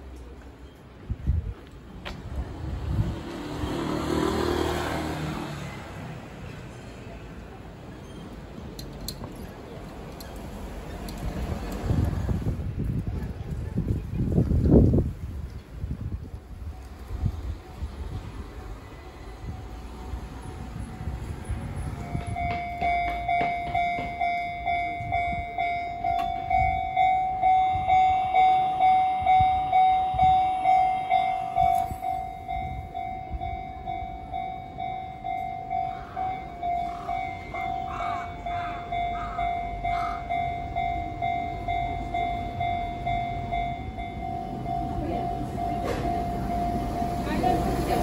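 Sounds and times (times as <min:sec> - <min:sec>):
level crossing warning bell: 0:16.6 - 0:48.0.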